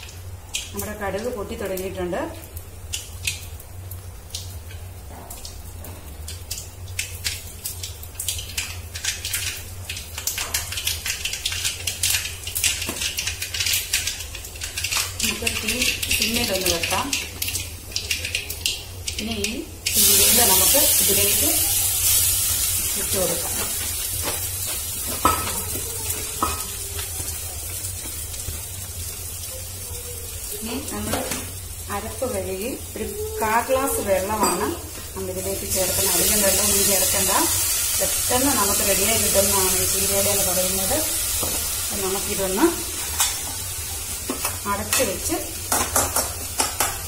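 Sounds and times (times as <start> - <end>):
seeds popping in hot oil: 2.5 - 29.5, 34.4 - 47.0.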